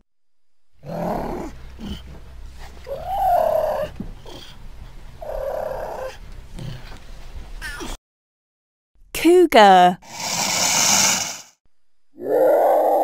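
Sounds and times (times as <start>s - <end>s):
cougar rough calls: 12.2s - 13.0s.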